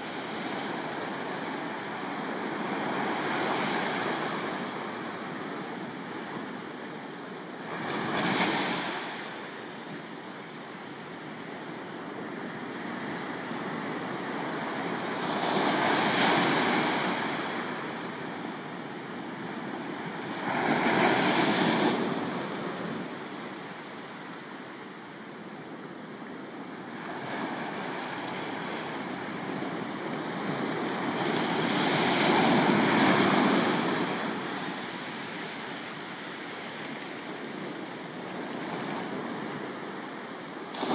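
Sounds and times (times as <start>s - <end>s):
ocean surf breaking on rocks: 7.5s - 9.8s, 12.3s - 24.6s, 26.8s - 40.9s.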